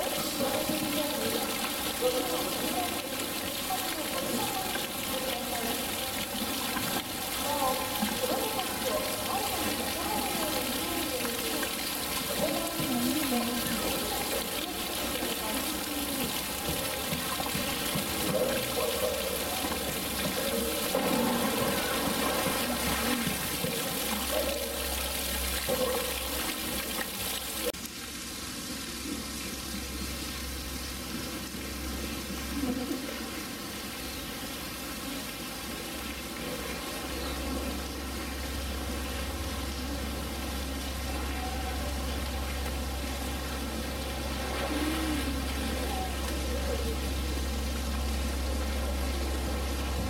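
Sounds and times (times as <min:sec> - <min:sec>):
water splashing and sloshing: 0:00.0 - 0:50.0.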